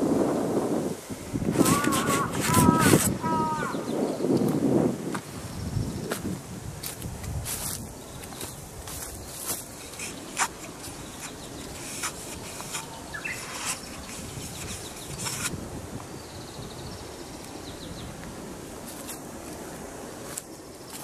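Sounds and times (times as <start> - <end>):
wind noise: 0.0 - 21.0
rising bird chirp: 1.2 - 4.4, 9.2 - 15.5
footsteps on gravel and leaves: 6.0 - 15.5, 18.8 - 21.0.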